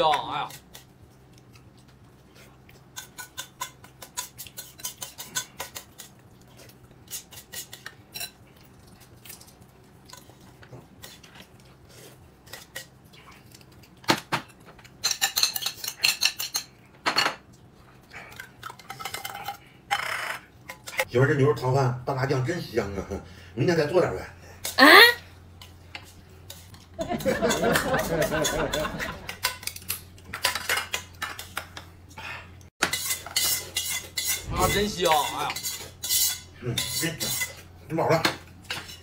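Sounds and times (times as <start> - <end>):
utensils clinking against bowl: 2.9 - 6.2, 14.8 - 17.4, 25.6 - 31.8, 32.8 - 39.0.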